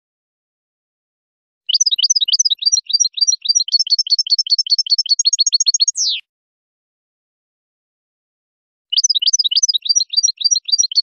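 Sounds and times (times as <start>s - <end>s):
goldfinch twittering song: 1.7s - 6.2s, 8.9s - 11.0s.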